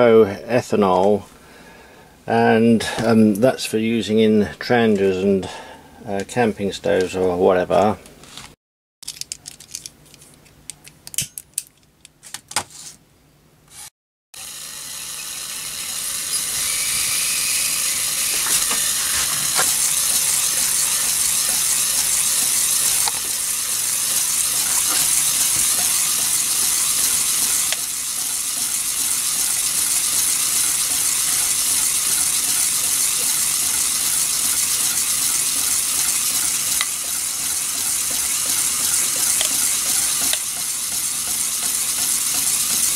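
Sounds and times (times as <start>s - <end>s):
steam hissing from jets: 14.4s - 35.3s
faint rattle of spinning parts: 14.9s - 42.9s.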